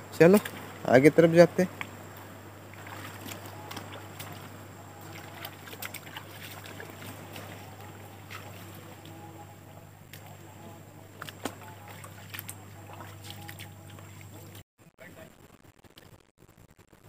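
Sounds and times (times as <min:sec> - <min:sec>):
faint low hum: 0:00.0 - 0:17.0
footsteps on wet rocky ground: 0:02.8 - 0:09.2, 0:11.1 - 0:14.6.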